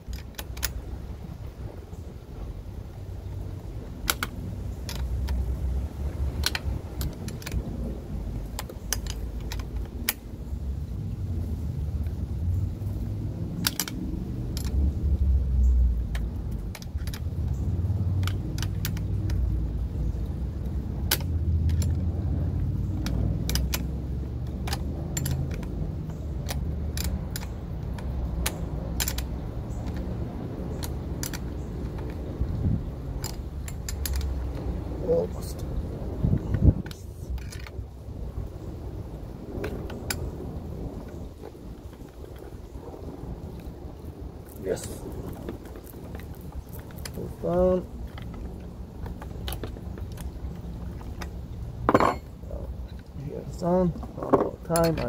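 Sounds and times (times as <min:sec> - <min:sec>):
steady low rumble: 0:00.0 - 0:55.0
metallic tool clicks: 0:04.0 - 0:05.5, 0:06.3 - 0:07.7, 0:08.5 - 0:10.3, 0:13.6 - 0:15.0, 0:16.0 - 0:19.5, 0:21.0 - 0:22.1, 0:22.7 - 0:32.2, 0:33.1 - 0:34.7.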